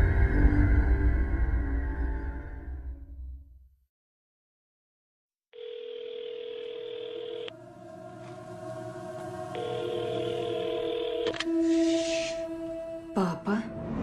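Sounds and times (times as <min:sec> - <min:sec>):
telephone ringback tone: 0:05.6 - 0:07.6, 0:09.6 - 0:11.5
low music drone: 0:07.5 - 0:14.0.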